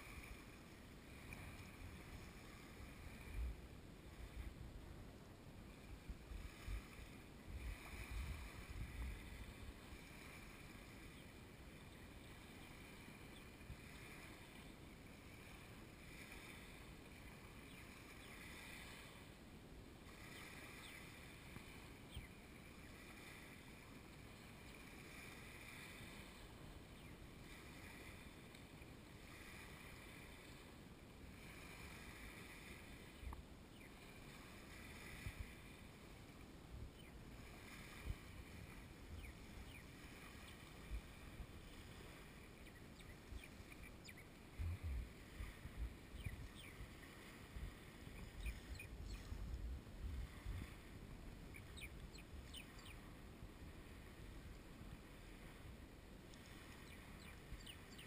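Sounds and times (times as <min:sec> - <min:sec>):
small waves lapping on sandy shore: 0:00.0 - 0:58.0
wind buffeting microphone: 0:06.0 - 0:09.8, 0:37.0 - 0:53.0.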